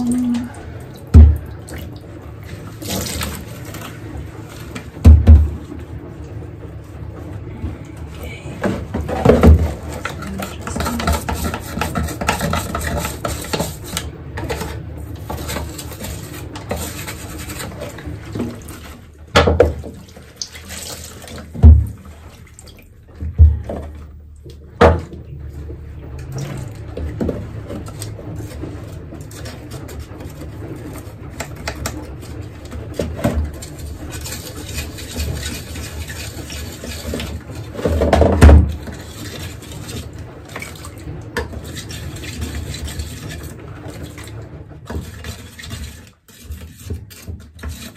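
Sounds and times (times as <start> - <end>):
wet scrubbing of plastic: 0.0 - 47.9
brush rasping: 10.0 - 14.7, 15.3 - 18.0, 33.6 - 37.4.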